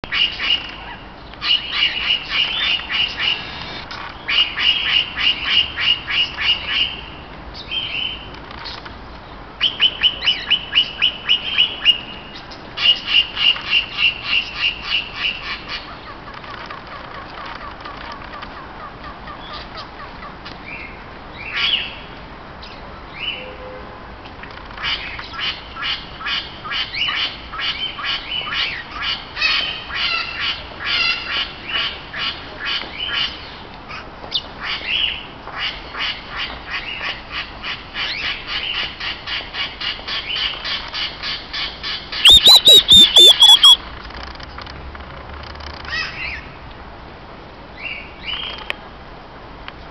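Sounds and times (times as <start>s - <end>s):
parrots chattering: 42.2s - 43.8s.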